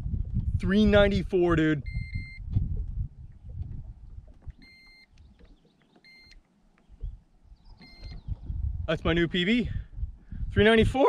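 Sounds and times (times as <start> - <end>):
wind rumble on microphone: 0.0 - 5.7, 6.9 - 11.0
short high-pitched beeps: 1.8 - 2.5, 4.6 - 5.1, 6.0 - 6.4, 7.8 - 8.3.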